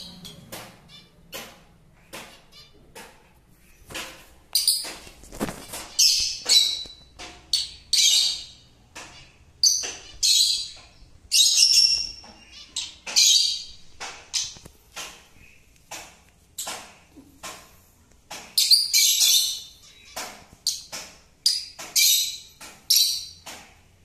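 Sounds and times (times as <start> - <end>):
lovebirds calling shrilly: 4.6 - 14.7, 18.6 - 23.5.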